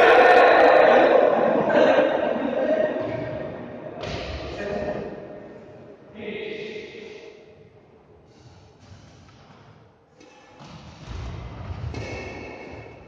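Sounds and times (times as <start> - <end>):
racket hitting shuttlecock: 10.2 - 13.0.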